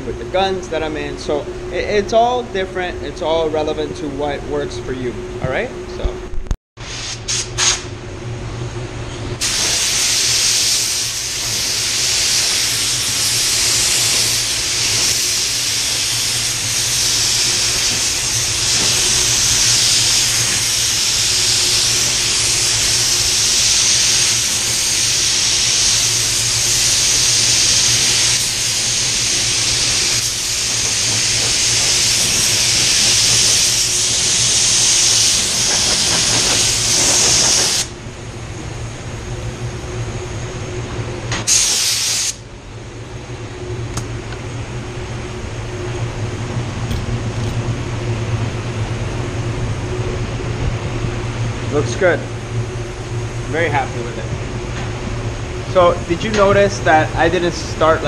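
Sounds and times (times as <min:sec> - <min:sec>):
spray gun short bursts: 0:06.8 - 0:07.9, 0:09.4 - 0:37.9, 0:41.3 - 0:42.4
spray gun hissing: 0:09.4 - 0:37.9, 0:41.4 - 0:42.4.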